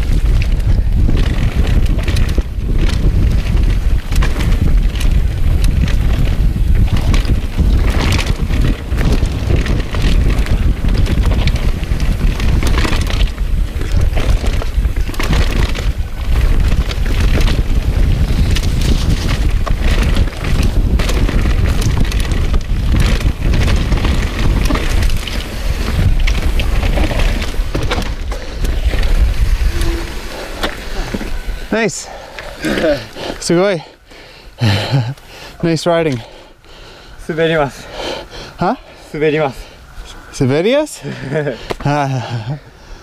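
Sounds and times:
bike knocks and clatters: 0.0 - 29.9
bike tyres on dirt: 0.0 - 43.0
wind rushing over microphone: 0.0 - 43.0.

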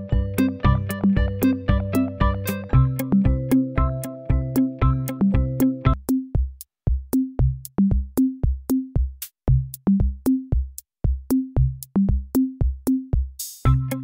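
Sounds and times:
bass line: 0.0 - 6.0, 13.6 - 14.0
held keyboard chords: 0.0 - 6.0, 13.7 - 14.0
electronic drum beat: 0.0 - 14.0.

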